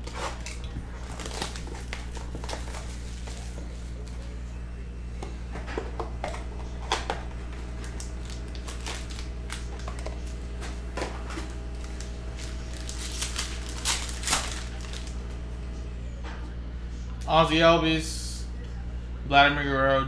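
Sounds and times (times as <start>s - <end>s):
foil pack crinkling: 0.0s - 4.2s, 5.9s - 15.3s
steady low hum: 0.0s - 20.0s.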